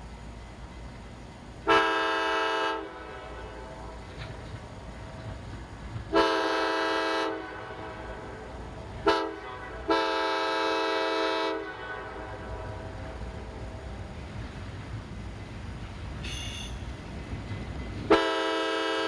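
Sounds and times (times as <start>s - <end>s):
train rumble: 0.0s - 19.0s
locomotive air horn: 1.6s - 3.7s, 6.1s - 8.3s, 9.0s - 12.9s, 18.1s - 19.0s.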